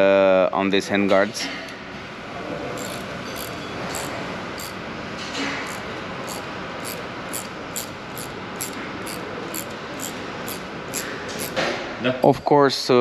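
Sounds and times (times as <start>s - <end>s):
ratchet wrench clicking: 2.8s - 4.8s, 5.6s - 11.6s.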